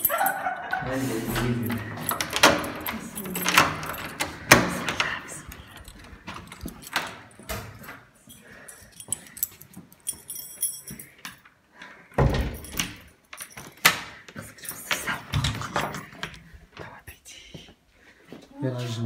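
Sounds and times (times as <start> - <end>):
metallic jingle: 0.0 - 11.3.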